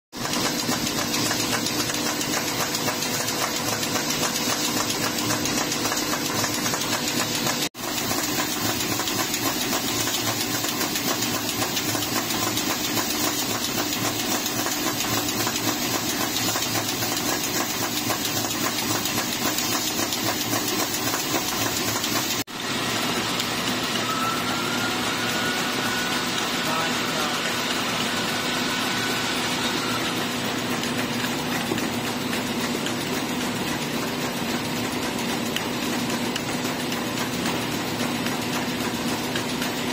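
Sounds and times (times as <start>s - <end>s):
machine humming and clattering: 0.2s - 39.9s.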